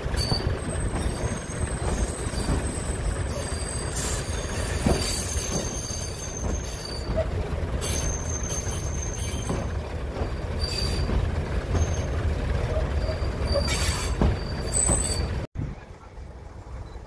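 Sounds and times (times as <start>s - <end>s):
train wheel squeal: 0.0s - 15.5s
train low rumble: 0.0s - 17.0s.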